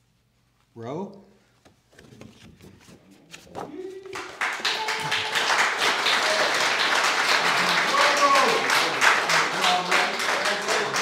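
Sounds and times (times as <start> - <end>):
audience applause: 4.2 - 11.0.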